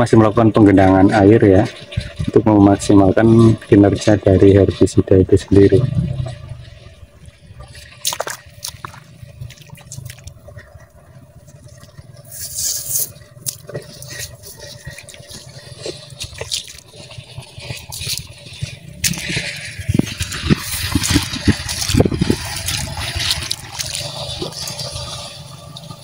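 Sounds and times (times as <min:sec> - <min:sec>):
water sloshing and dripping: 0:00.0 - 0:26.0
short splashes: 0:07.7 - 0:10.4, 0:12.2 - 0:25.3.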